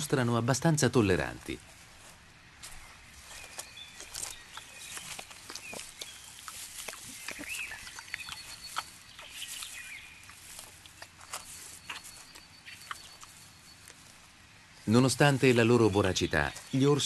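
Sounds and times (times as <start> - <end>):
twigs and leaves crackling: 1.0 - 17.0.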